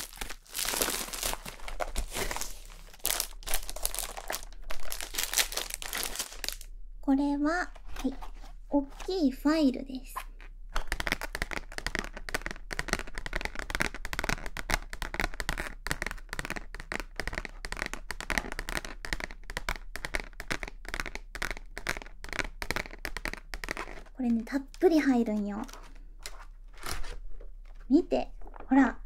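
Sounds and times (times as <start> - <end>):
stiff plastic crackling: 0.0 - 6.7, 10.2 - 29.0.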